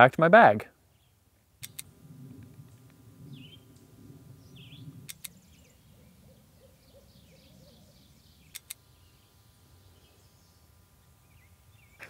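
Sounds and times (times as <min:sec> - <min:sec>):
birds chirping and warbling: 0:00.8 - 0:12.0
sharp clicks: 0:01.6 - 0:03.0, 0:05.0 - 0:05.4, 0:08.4 - 0:08.8
low rumble: 0:01.8 - 0:05.9.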